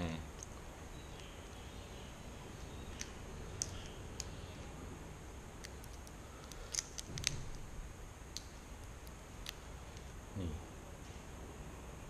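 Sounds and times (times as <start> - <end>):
low room hum: 0.0 - 12.0
prawn shell cracking when peeled: 5.6 - 7.7.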